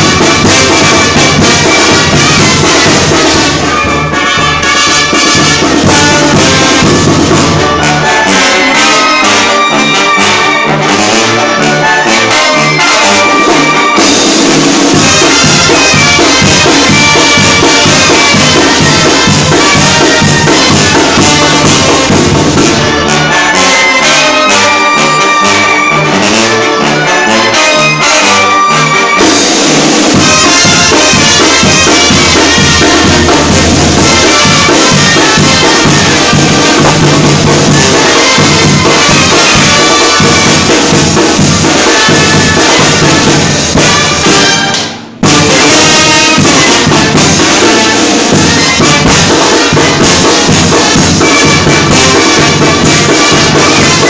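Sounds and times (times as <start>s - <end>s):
bass drum: 0.0s - 7.9s, 14.3s - 23.0s, 29.5s - 54.0s
brass band playing: 0.0s - 54.0s.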